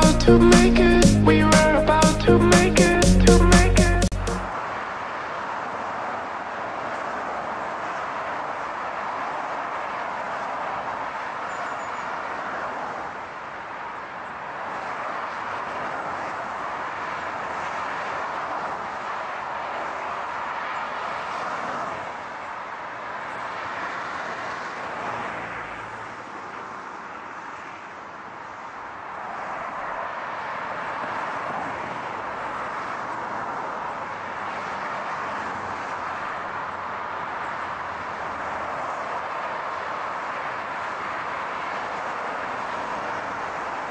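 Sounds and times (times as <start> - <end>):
cars driving past: 4.1 - 43.9.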